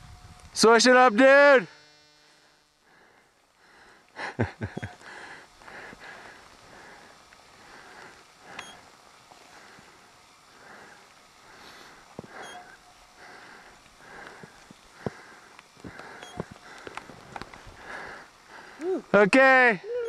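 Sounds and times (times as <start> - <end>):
camera handling noise: 15.6 - 17.8.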